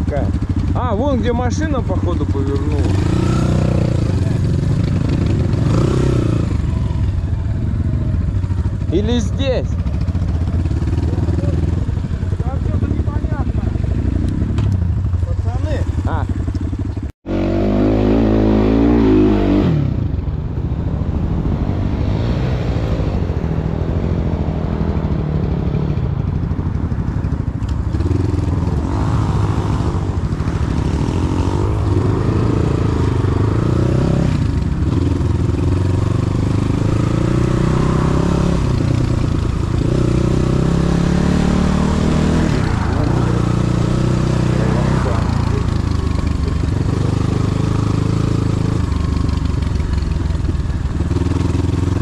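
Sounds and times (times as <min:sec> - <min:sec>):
vehicle engine revving: 0:01.5 - 0:08.3, 0:09.5 - 0:20.2, 0:27.9 - 0:52.0.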